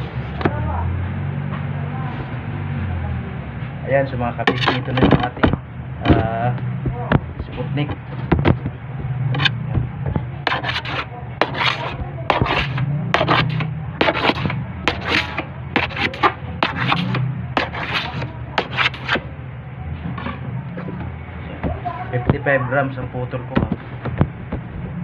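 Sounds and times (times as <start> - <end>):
dough cutter scraping and chopping: 4.4 - 19.3.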